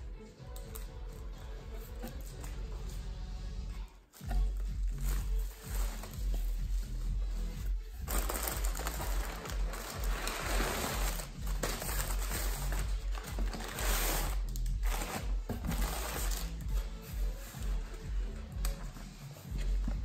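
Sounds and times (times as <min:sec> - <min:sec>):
background music with bass line: 0:00.0 - 0:20.0
plastic packaging crinkling: 0:08.0 - 0:16.6.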